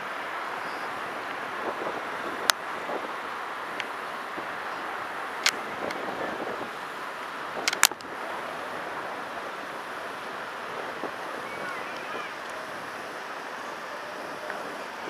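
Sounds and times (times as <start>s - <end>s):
surf washing: 0.0s - 15.0s
wind buffeting microphone: 0.0s - 15.0s
sharp clicks: 7.6s - 8.1s.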